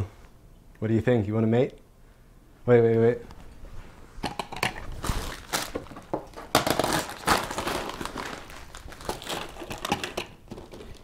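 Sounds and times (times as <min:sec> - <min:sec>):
plastic crinkling and rustling: 0:04.6 - 0:11.0.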